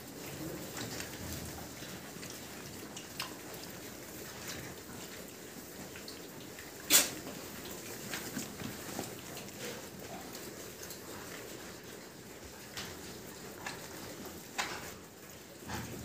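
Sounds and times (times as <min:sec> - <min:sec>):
trotters clicking on concrete: 0:00.0 - 0:16.0
piglets snuffling: 0:06.8 - 0:12.2.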